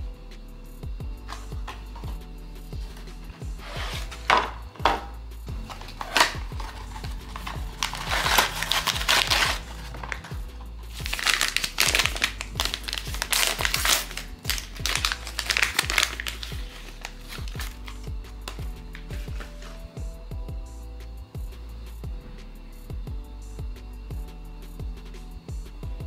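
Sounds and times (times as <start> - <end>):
soft background music: 0.0 - 26.0
foil pouch crinkling: 5.6 - 19.8
sharp foil crackles: 5.7 - 18.0.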